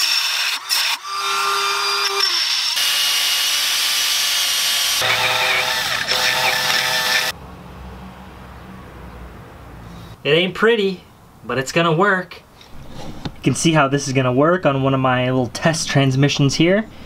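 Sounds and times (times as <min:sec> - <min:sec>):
cordless drill boring through metal: 0:00.0 - 0:07.3.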